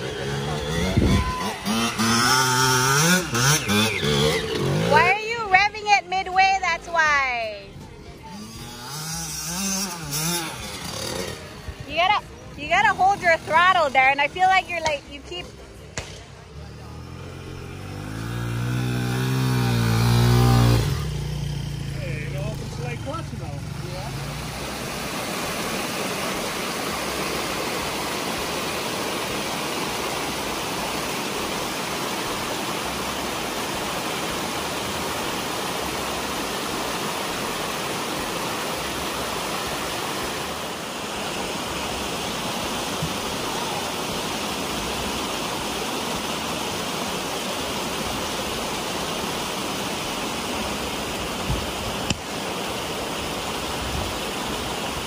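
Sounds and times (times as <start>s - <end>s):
water rushing over rocks: 0.0s - 7.6s, 17.8s - 55.0s.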